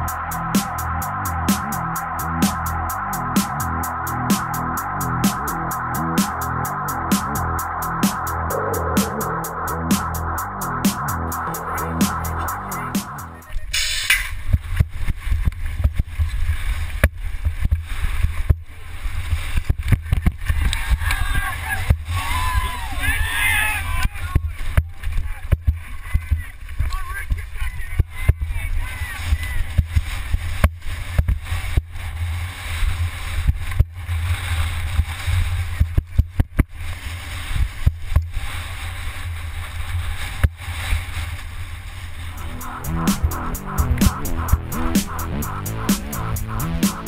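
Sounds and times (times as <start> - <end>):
brief hiss: 13.7 - 14.4.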